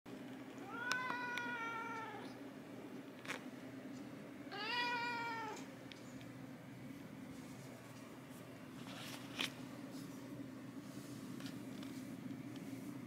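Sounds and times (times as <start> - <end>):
cat meowing: 0.6 - 2.4, 4.5 - 5.6.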